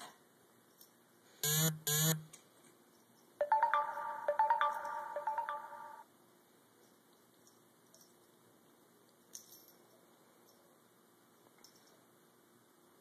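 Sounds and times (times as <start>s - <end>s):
electronic ringtone melody: 3.4s - 6.0s
telephone ringing: 3.4s - 6.0s.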